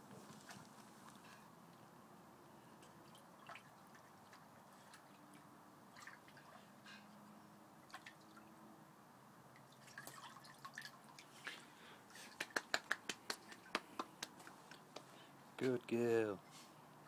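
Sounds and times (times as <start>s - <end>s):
small water splashes and drips: 2.8s - 6.7s, 7.8s - 8.6s, 9.5s - 14.4s.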